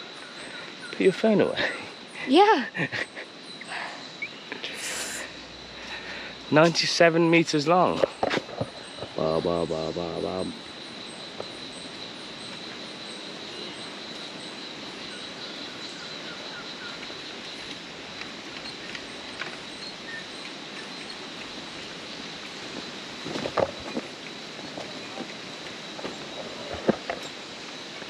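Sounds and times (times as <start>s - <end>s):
high insect drone: 0.0s - 28.0s
footsteps on steel grating: 22.7s - 27.3s.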